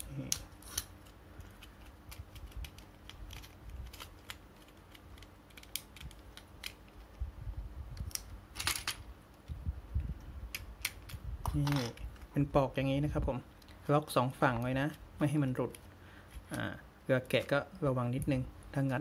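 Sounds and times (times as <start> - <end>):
plastic toy parts clicking: 1.5 - 7.0, 10.5 - 12.1.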